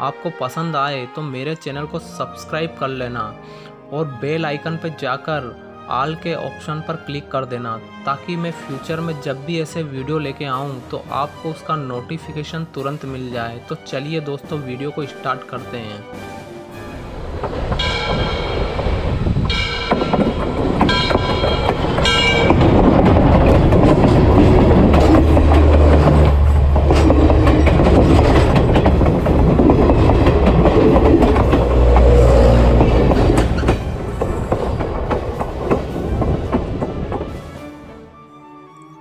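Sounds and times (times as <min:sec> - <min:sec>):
train rumble with wheel clatter: 0:16.2 - 0:38.1.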